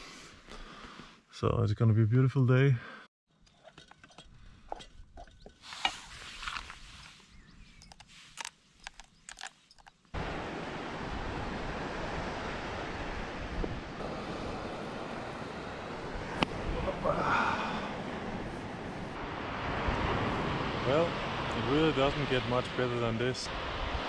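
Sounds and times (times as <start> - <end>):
coastal wind rushing: 10.2 - 24.0.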